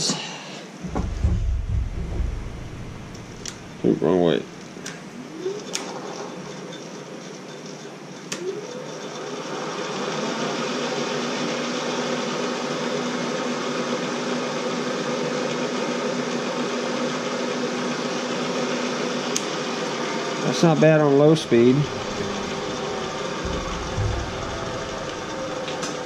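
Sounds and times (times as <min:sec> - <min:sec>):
milling machine humming and whining: 0:05.3 - 0:26.0.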